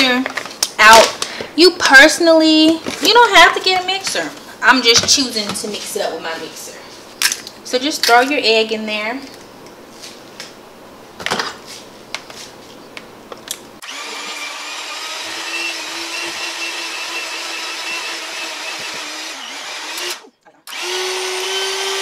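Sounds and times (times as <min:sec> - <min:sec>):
electric hand mixer running: 0:13.8 - 0:22.0.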